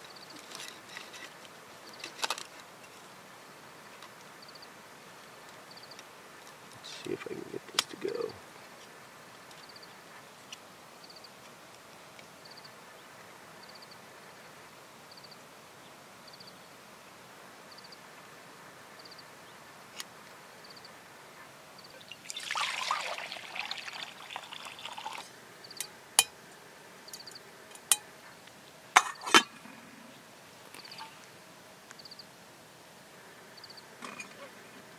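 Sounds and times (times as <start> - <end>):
kettle clicks and clinks: 22.1 - 26.4.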